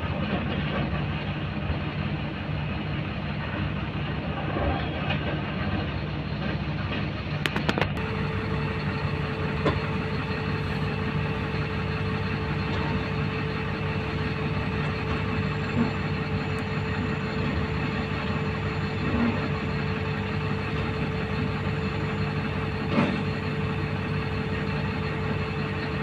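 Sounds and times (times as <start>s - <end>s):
diesel truck engine idling: 0.0s - 26.0s
steady whine: 7.4s - 26.0s.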